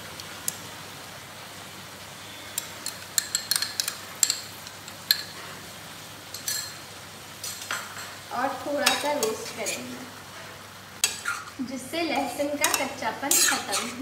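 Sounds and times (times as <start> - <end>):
meat sizzling in a pan: 2.1 - 14.0.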